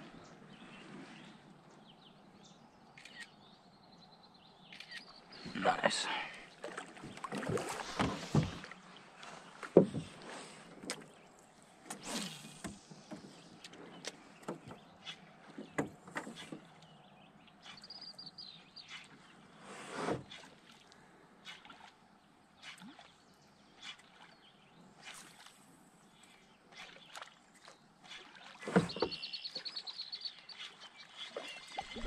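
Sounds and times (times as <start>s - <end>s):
paddle knocking against canoe hull: 6.6s - 8.8s, 9.6s - 10.2s, 15.5s - 16.6s.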